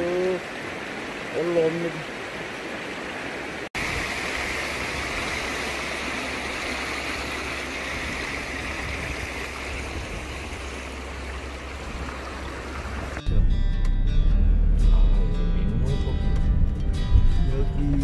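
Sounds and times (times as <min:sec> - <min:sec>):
stream rushing over rocks: 0:00.0 - 0:13.2.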